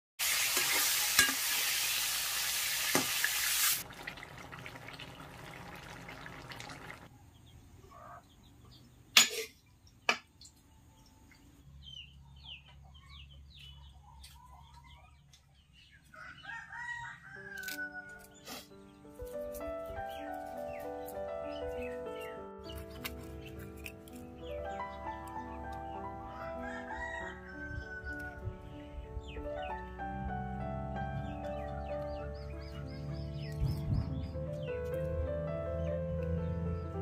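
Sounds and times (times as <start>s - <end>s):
fish sizzling in oil: 0.2s - 7.0s
faint birds chirping: 5.0s - 17.2s, 27.5s - 37.0s
rooster crowing: 26.3s - 28.4s.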